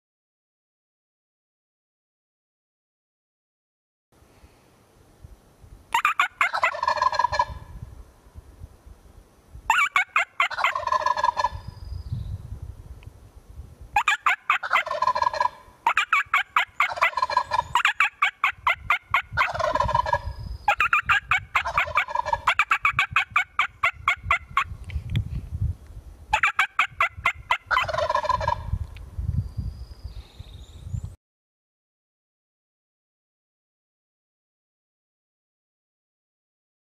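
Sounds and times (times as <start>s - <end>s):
turkey gobbling: 5.9s - 7.6s, 9.7s - 11.6s, 14.0s - 24.7s, 26.3s - 28.7s.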